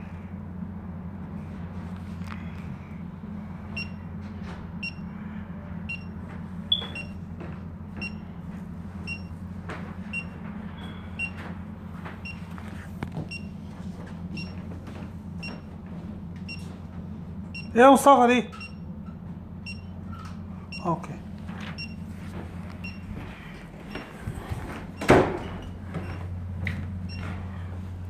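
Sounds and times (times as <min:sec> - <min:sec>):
steady low hum: 0:00.0 - 0:28.0
short high electronic beeps: 0:06.7 - 0:07.1.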